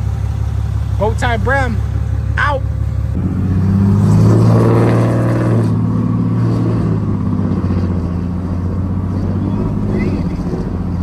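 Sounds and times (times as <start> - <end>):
diesel truck accelerating: 0.0 - 11.0.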